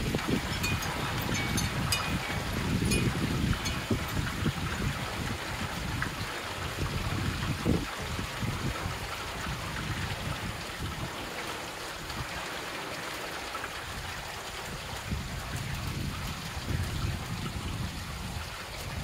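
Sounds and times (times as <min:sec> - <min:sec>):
rain hissing: 0:00.0 - 0:19.0
water trickling: 0:00.0 - 0:19.0.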